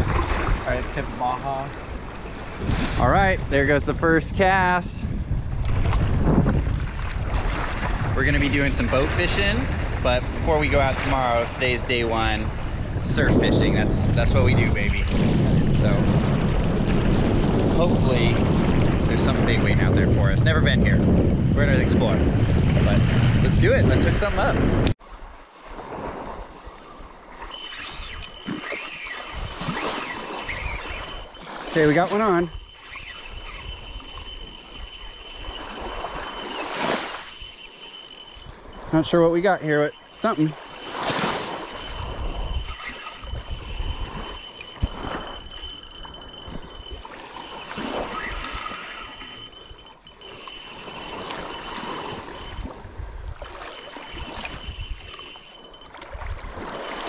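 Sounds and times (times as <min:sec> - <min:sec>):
light surf: 0:00.0 - 0:06.0, 0:06.6 - 0:15.1, 0:25.2 - 0:57.0
wind on microphone: 0:00.0 - 0:57.0
fishing reel whirring: 0:27.3 - 0:57.0.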